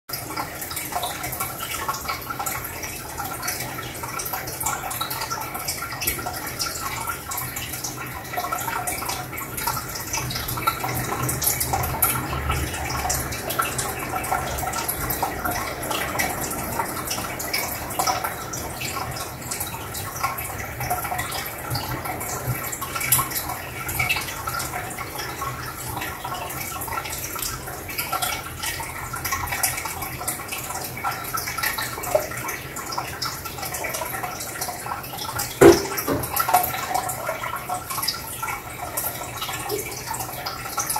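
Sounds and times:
aquarium filter bubbling: 0:00.1 - 0:40.9.

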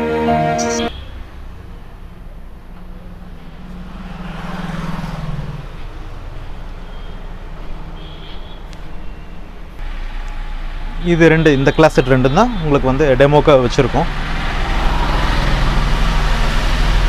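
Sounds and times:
street traffic noise: 0:00.0 - 0:17.0
vehicle passing by: 0:00.9 - 0:08.0, 0:12.6 - 0:17.0.

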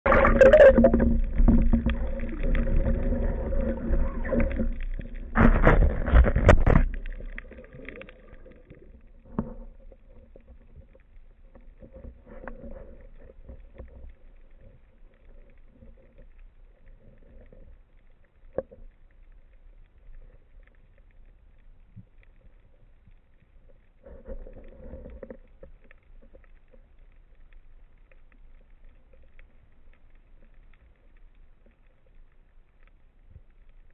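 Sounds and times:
water rushing and bubbling: 0:00.0 - 0:14.8
muffled underwater noise: 0:00.1 - 0:10.5.

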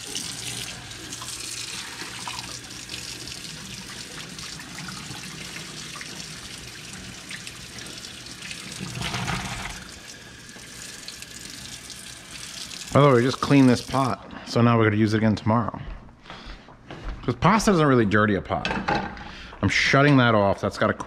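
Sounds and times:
faucet running water: 0:00.0 - 0:14.3.

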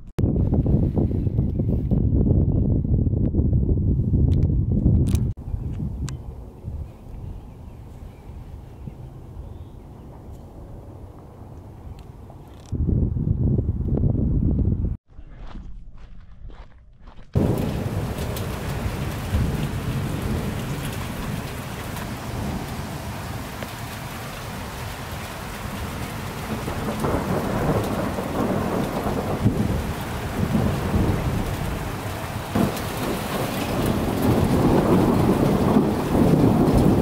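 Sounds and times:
rolling thunder: 0:17.4 - 0:37.0
steady rain: 0:17.4 - 0:37.0.

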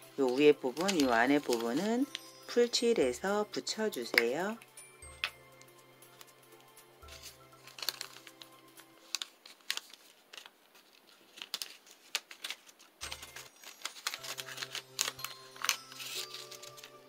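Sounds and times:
paper rustling: 0:00.2 - 0:02.2, 0:07.0 - 0:17.0.

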